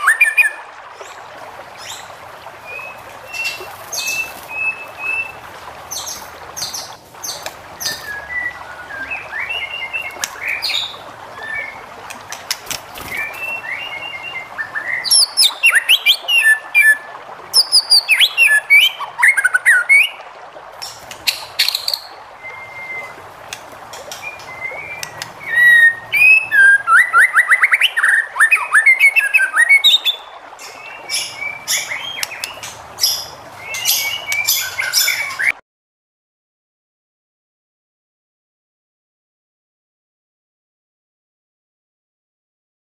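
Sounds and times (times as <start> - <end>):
songbird singing whistled phrases: 13.0 - 17.0, 17.6 - 20.2, 21.3 - 23.2, 24.2 - 35.5.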